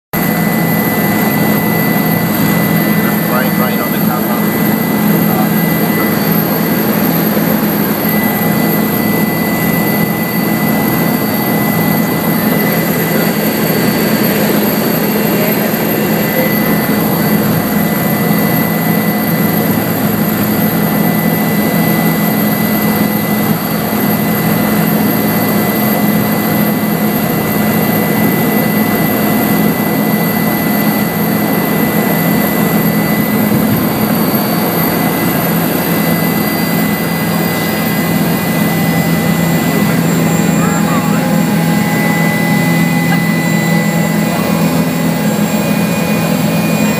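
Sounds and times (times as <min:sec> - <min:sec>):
helicopter rotor drone: 0:00.2 - 0:46.9
helicopter turbine whine: 0:00.2 - 0:46.9.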